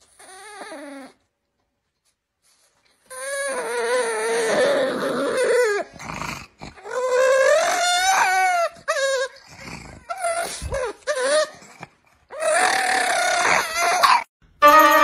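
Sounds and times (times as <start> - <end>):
dog howling: 6.8 - 9.4, 12.3 - 15.0.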